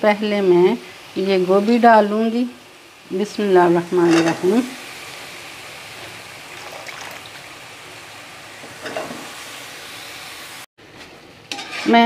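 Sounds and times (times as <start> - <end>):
vegetables sizzling in a pan: 0.0 - 12.0
metal spatula stirring: 11.5 - 12.0.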